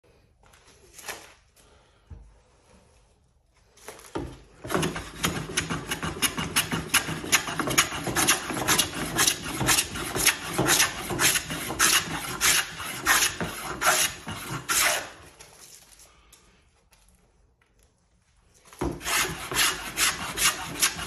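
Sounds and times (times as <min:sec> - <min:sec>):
hand plane shaving wood: 0:04.6 - 0:15.2, 0:18.8 - 0:21.0.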